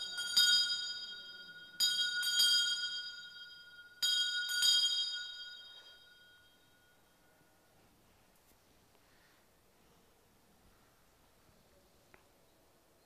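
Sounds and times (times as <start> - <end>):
altar bells ringing: 0.0 - 7.8.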